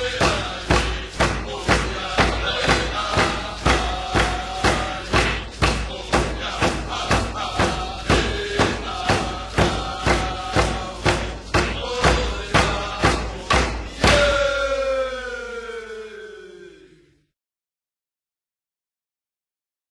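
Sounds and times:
steady drumbeat: 0.0s - 14.8s
group chanting: 0.0s - 17.3s.

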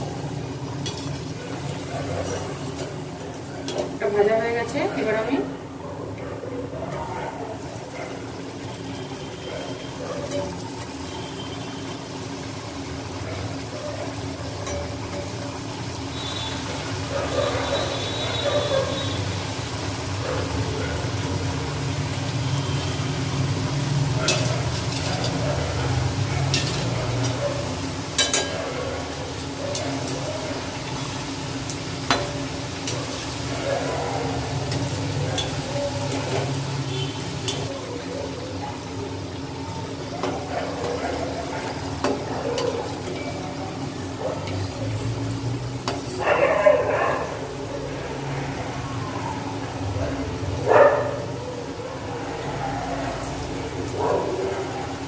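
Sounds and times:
deep-frying sizzle in oil: 0.0s - 5.8s, 7.6s - 55.0s
metal spoon clinking against wok: 0.8s - 3.0s, 14.6s - 15.6s, 24.2s - 27.4s, 28.0s - 28.7s, 34.7s - 36.6s, 37.4s - 37.7s, 42.0s - 43.6s, 45.8s - 46.2s.

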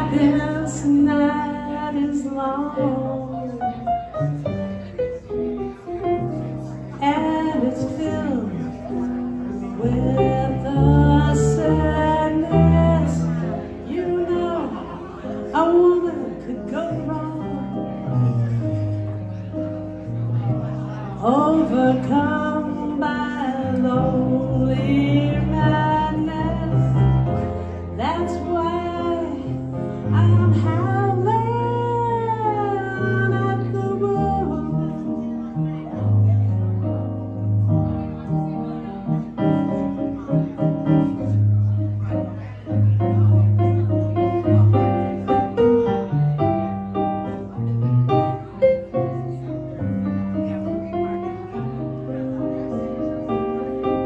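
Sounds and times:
woman singing: 0.0s - 3.8s, 7.0s - 8.8s, 9.7s - 17.7s, 21.2s - 27.2s, 28.0s - 35.4s
electric keyboard: 0.0s - 54.0s
solo piano chords: 0.0s - 54.0s.

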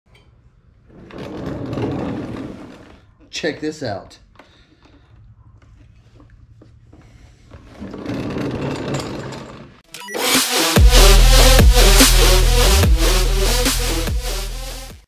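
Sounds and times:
loud electronic music: 9.9s - 15.0s.

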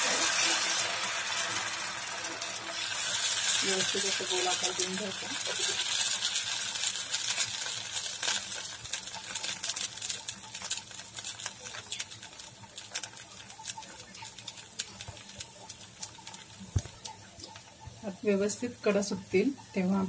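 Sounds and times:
batter sizzling in oil: 0.0s - 20.0s.

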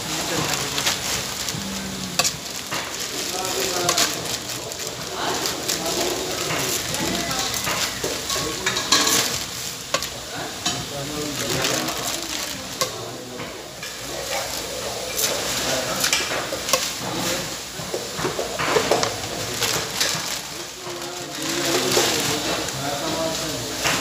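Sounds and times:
sizzle of frying: 0.0s - 24.0s.

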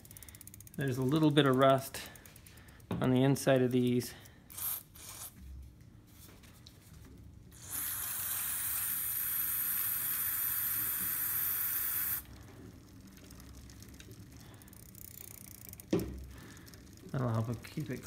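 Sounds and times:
aerosol can spray hissing: 7.6s - 12.2s.

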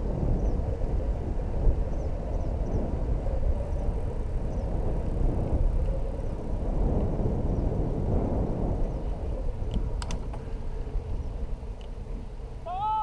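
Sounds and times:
wind rumbling on microphone: 0.0s - 13.0s
sharp clicks: 9.7s - 10.4s.

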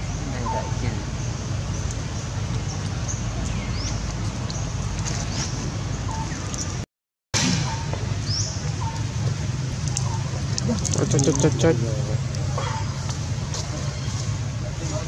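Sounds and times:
bird chirps: 0.0s - 6.8s, 7.6s - 9.2s
low outdoor rumble: 0.0s - 6.8s, 7.4s - 15.0s.

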